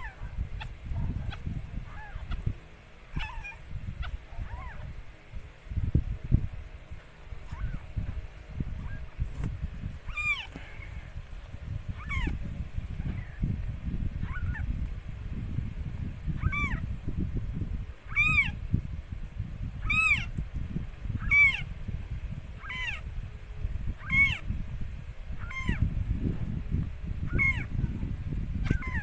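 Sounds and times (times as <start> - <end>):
kittens mewing: 0.0 - 2.5, 3.1 - 5.0, 10.0 - 11.0, 12.0 - 12.4, 14.2 - 14.7, 16.4 - 16.8, 18.1 - 18.6, 21.2 - 21.7, 22.6 - 23.1, 24.0 - 24.4, 25.4 - 25.8, 27.3 - 27.7, 28.6 - 29.0.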